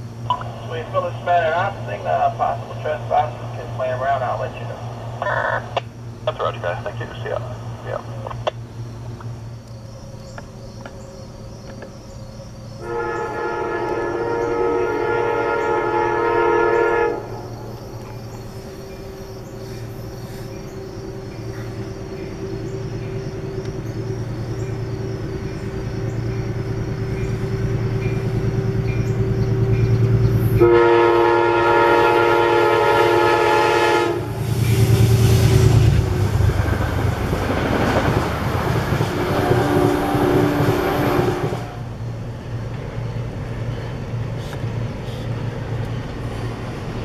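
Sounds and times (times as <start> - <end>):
train rumble: 0.0 - 47.0
locomotive horn blast: 12.8 - 17.6, 25.0 - 42.0
train wheel clatter: 34.4 - 41.7.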